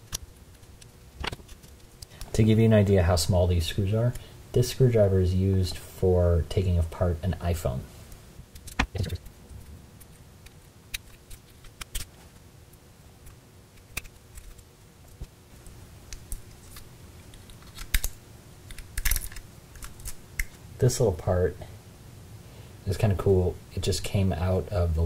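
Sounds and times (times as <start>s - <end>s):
handling small parts: 13.2s - 20.6s.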